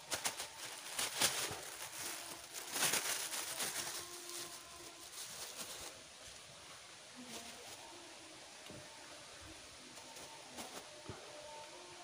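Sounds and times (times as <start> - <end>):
plastic bags rustling: 0.0 - 6.2.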